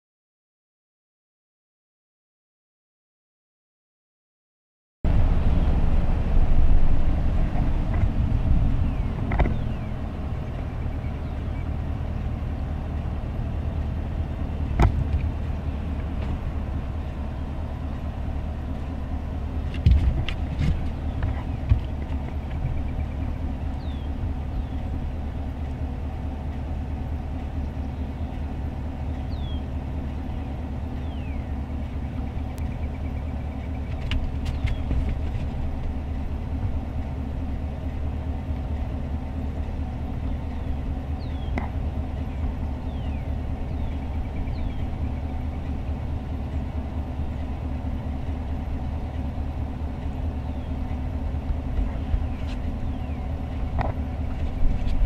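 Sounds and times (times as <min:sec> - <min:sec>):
vehicle engine idling: 0:05.1 - 0:55.0
faint bird chirps: 0:29.2 - 0:34.9.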